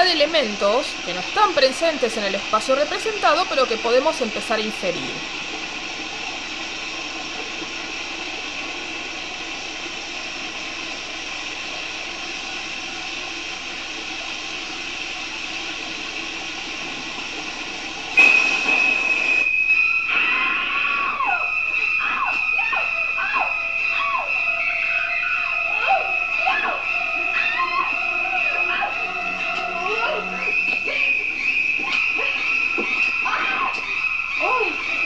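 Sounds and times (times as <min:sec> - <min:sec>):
shower water running: 0:00.0 - 0:19.5
screeching high violins: 0:20.2 - 0:32.6.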